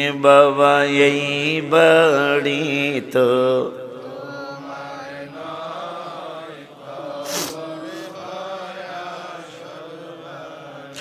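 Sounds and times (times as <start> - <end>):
chant-like vocal drone: 0.0 - 11.0
short breathy hiss: 7.2 - 8.2.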